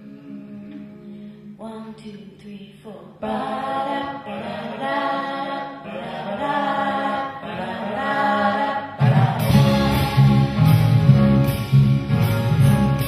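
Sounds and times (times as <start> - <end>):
drums with steady beat: 9.0 - 13.0.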